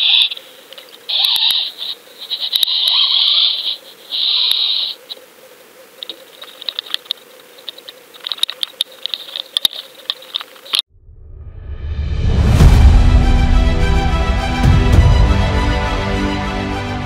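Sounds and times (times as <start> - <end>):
irregular ticks and clicks: 0.0 - 5.2, 6.0 - 10.8.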